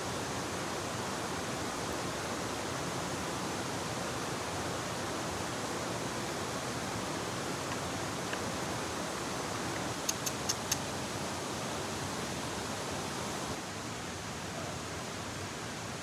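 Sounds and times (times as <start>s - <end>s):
sharp clicks: 10.0s - 10.8s.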